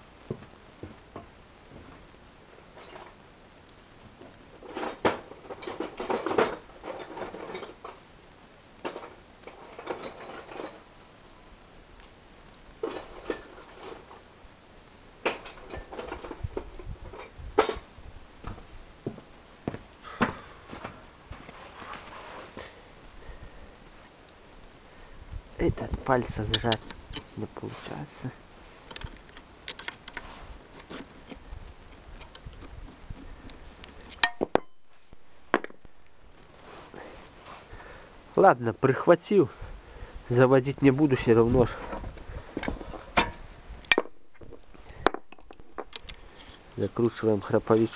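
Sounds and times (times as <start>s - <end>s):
tools clinking and scraping on metal: 2.5s - 3.2s, 4.6s - 8.0s, 8.9s - 10.9s, 12.8s - 14.2s, 15.2s - 17.8s, 26.4s - 28.0s.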